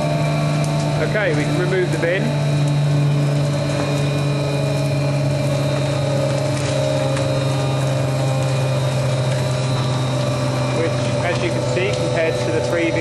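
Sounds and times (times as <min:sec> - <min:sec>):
machine humming loudly: 0:00.0 - 0:13.0.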